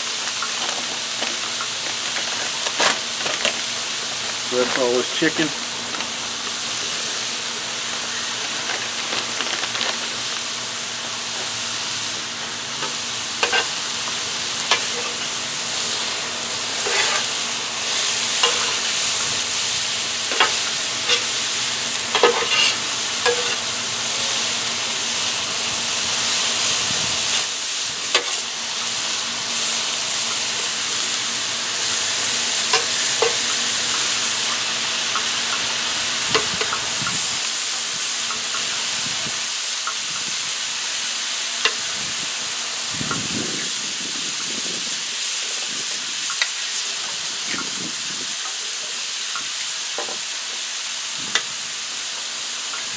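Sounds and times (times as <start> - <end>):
food sizzling on griddle: 0.0 - 52.9
metal spatula scraping griddle: 12.8 - 13.8, 16.7 - 19.2, 20.3 - 21.5, 22.1 - 23.6.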